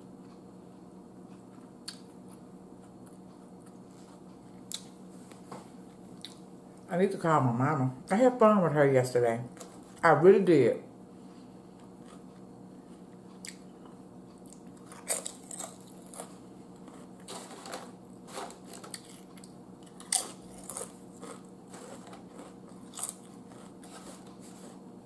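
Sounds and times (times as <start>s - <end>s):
quiet chewing: 0.2s - 6.9s, 11.7s - 24.8s
potato chips crunching: 14.4s - 24.8s.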